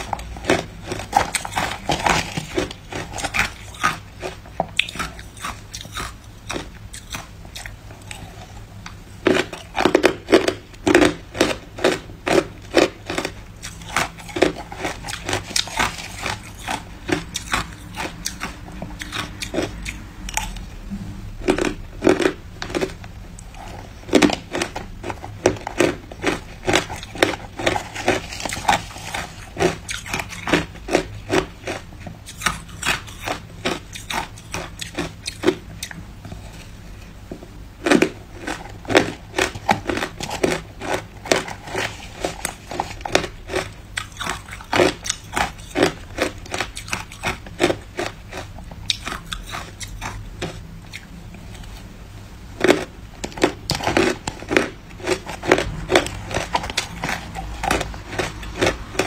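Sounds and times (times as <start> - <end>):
ice crunching between teeth: 0.0 - 8.5, 9.3 - 20.6, 21.4 - 35.9, 37.8 - 51.1, 52.6 - 59.0.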